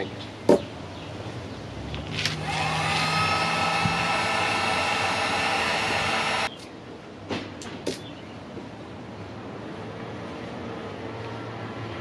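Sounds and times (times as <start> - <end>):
heat gun fan whine: 2.2 - 6.6.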